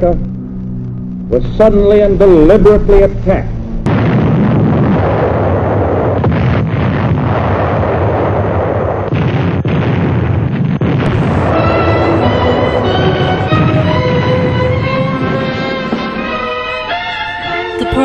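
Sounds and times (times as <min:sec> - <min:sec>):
explosions and blasts: 0:03.6 - 0:17.4
orchestral music: 0:11.1 - 0:18.0.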